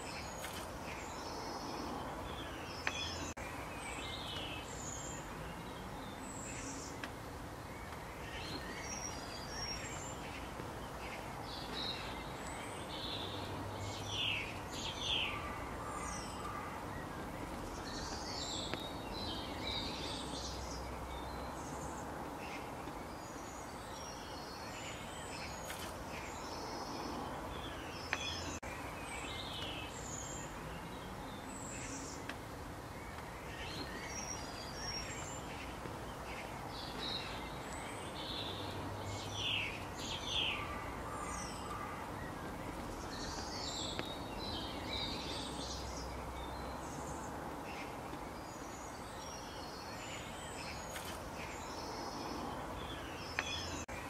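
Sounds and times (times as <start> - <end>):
small birds chirping: 0.0 - 54.0
steady background hiss: 0.0 - 54.0.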